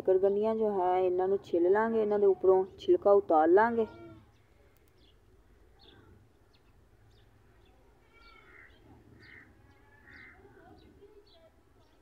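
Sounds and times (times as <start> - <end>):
harsh bird calls: 3.8 - 12.0
faint bird chirps: 3.9 - 12.0.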